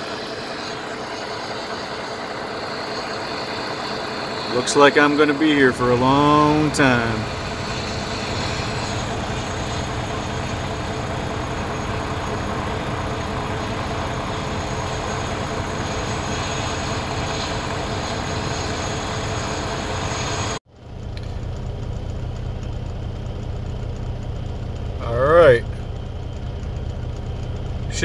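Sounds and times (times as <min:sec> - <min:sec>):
hiss: 0:00.0 - 0:20.6
car engine idling inside cabin: 0:01.6 - 0:18.6, 0:20.8 - 0:28.0.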